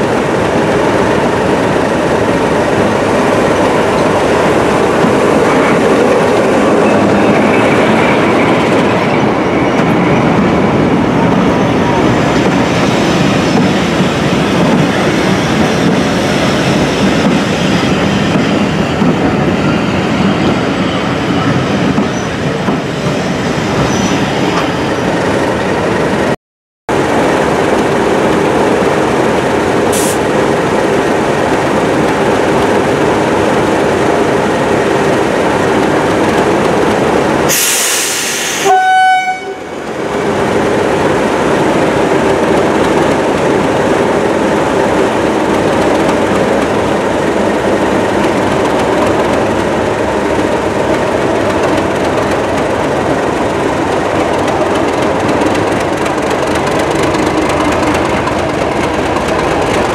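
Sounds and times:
diesel locomotive running: 0.0 - 59.9
locomotive horn note: 37.5 - 39.7.

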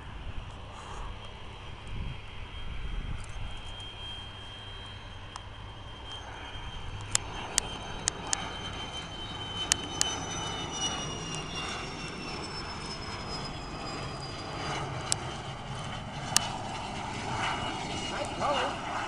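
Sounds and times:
jet engine whining: 0.0 - 19.0
sharp clicks: 9.6 - 10.2.

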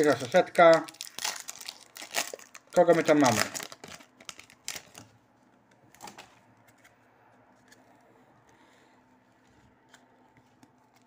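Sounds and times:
trading cards rustling: 0.0 - 5.2, 9.2 - 11.0.

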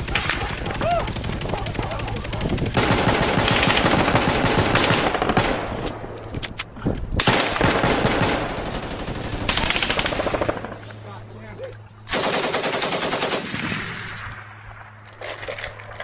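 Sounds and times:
automatic gunfire: 0.0 - 5.8, 7.2 - 10.8, 12.1 - 14.1.

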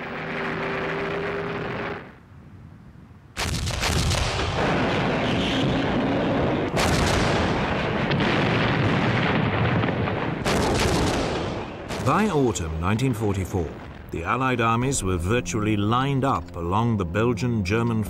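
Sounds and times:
artillery guns firing: 3.4 - 13.1
rumble of blasts: 3.4 - 18.0.

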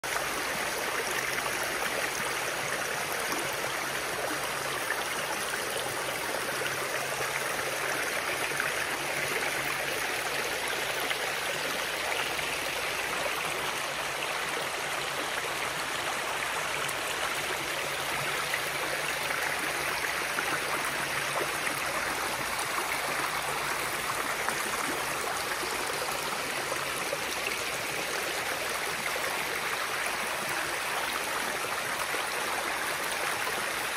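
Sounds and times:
stream flowing over stones: 0.0 - 33.9.

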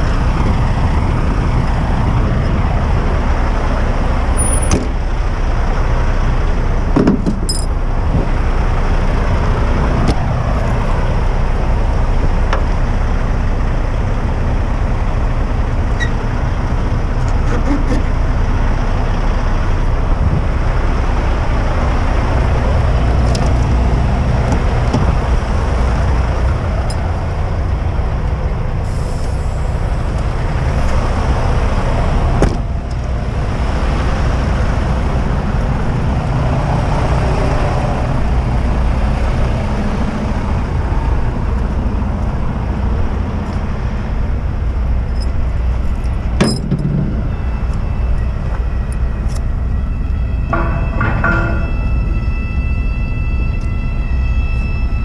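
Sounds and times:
diesel truck idling: 0.0 - 54.3
short pitched tone: 46.5 - 55.0.

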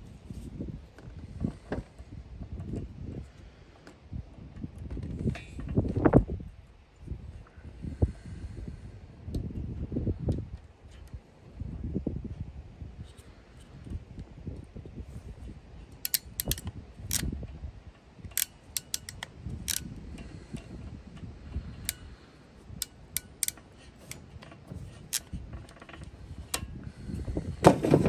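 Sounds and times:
crimping tool clicking: 16.0 - 17.3, 18.3 - 19.9, 21.8 - 24.2.

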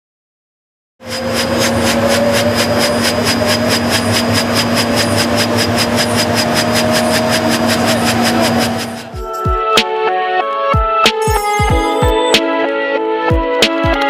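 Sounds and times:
turbine engines running: 1.0 - 9.2
helicopter rotor beating: 1.0 - 9.7.

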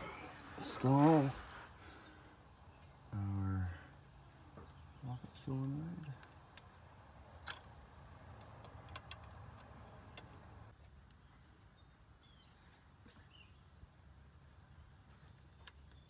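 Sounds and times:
faint bird chirps: 9.8 - 14.0.

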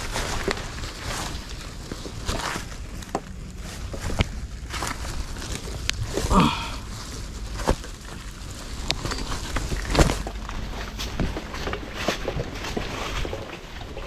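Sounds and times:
gear knocking and rustling: 0.0 - 14.0.

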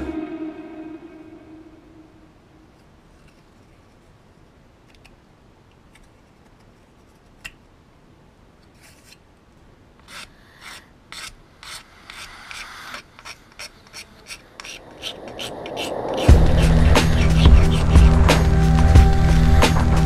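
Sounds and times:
file stroking plastic part: 8.7 - 9.2, 10.0 - 18.1
faint scraping: 10.1 - 19.9.

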